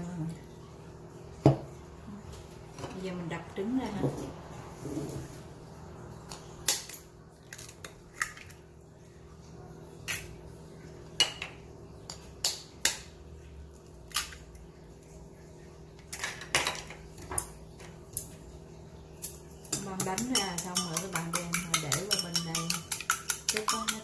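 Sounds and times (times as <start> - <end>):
knife tapping eggshells: 19.2 - 24.0
eggshells clicking against bowl: 19.7 - 24.0.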